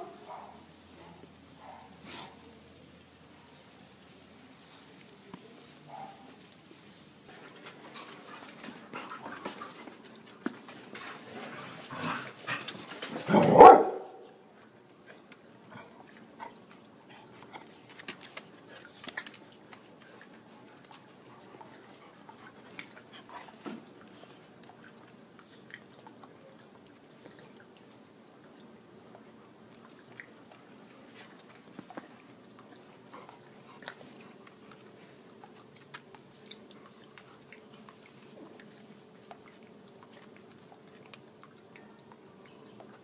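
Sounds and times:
dog barking: 1.6s - 1.9s, 5.9s - 6.3s, 13.3s - 14.2s
dog lapping water from bowl: 29.7s - 43.0s.

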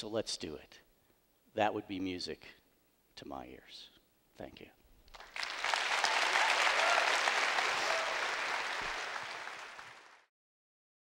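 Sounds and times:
audience applauding: 5.1s - 10.3s.

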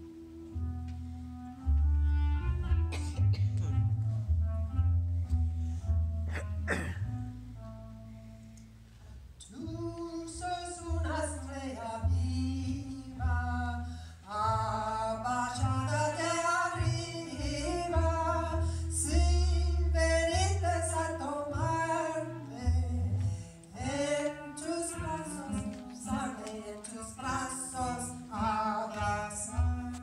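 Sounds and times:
clarinet: 0.0s - 9.1s
double bass low notes: 0.0s - 30.0s
woman singing into microphone: 23.8s - 30.0s.

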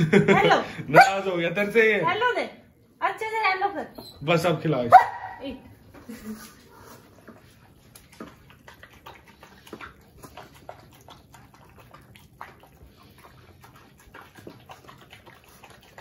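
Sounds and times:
dog chewing and smacking: 6.6s - 16.0s.

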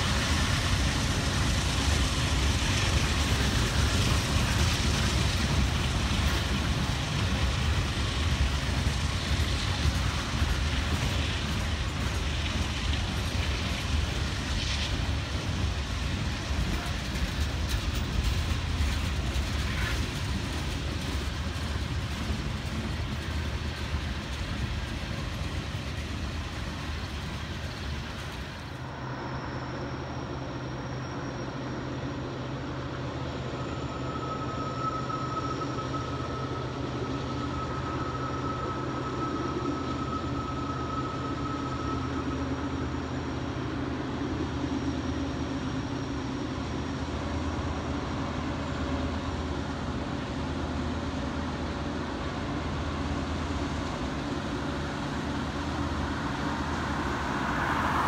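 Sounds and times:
train cars clanking: 0.0s - 29.5s
diesel locomotive hum: 0.0s - 58.0s
freight cars rumbling on rails: 0.0s - 58.0s.

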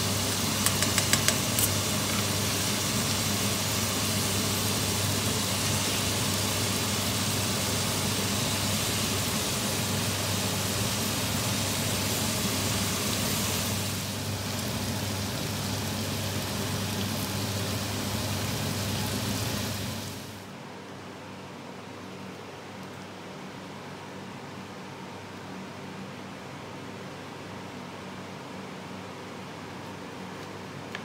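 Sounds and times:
vegetables sizzling in a pot: 0.0s - 20.5s.

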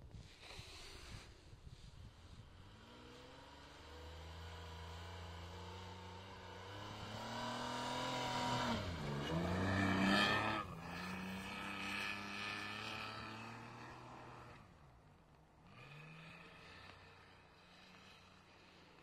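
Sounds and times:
car engine revving: 2.6s - 14.7s.

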